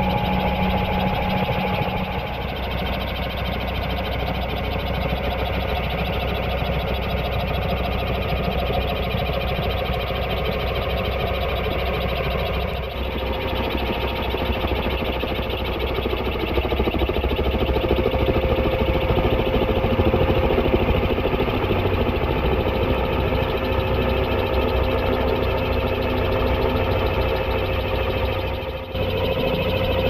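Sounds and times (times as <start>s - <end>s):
helicopter rotor flapping: 0.0s - 30.0s
steady whine: 0.0s - 30.0s.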